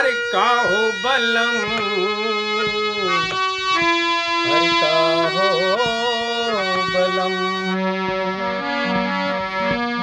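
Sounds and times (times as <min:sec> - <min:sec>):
harmonium melody over drone: 0:00.0 - 0:10.0.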